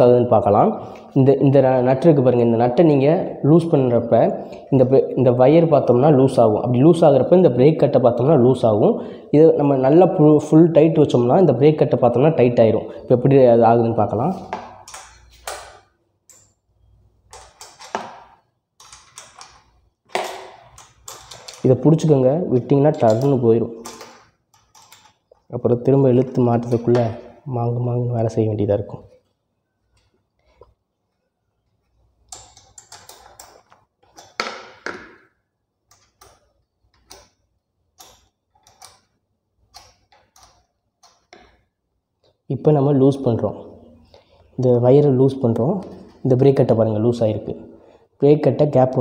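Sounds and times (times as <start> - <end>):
allen key clicking and scraping: 20.6 - 21.8, 23.0 - 25.5, 32.2 - 34.4, 38.0 - 41.6.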